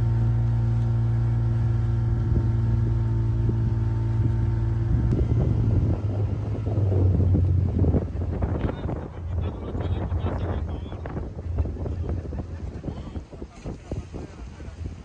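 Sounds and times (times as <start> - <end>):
motorboat engine: 0.0 - 15.0
gusty rushing: 3.4 - 15.0.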